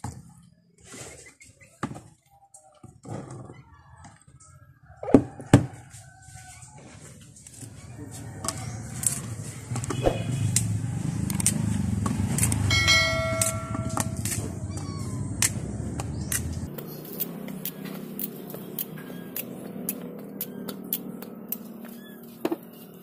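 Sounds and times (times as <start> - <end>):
short ringing tone: 12.7 - 14.2.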